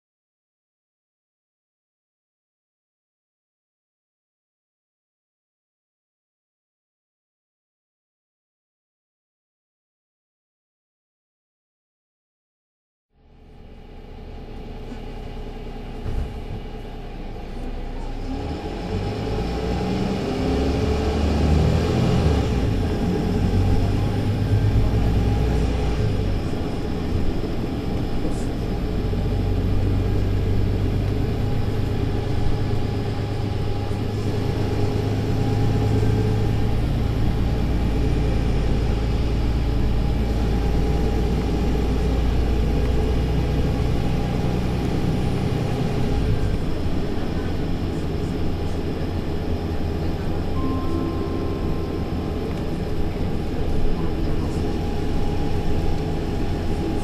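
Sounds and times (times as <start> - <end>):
bus diesel engine accelerating: 13.2 - 57.0.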